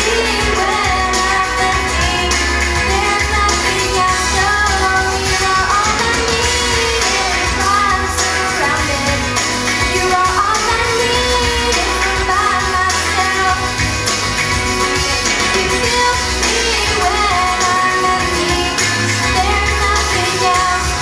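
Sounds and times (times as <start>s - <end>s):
girl singing into microphone: 0.0s - 13.8s, 15.5s - 21.0s
instrumental backing music: 0.0s - 21.0s.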